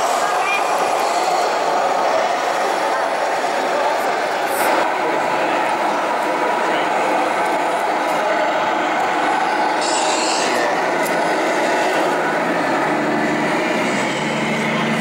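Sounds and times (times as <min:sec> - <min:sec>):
toy truck engine: 0:08.5 - 0:15.0.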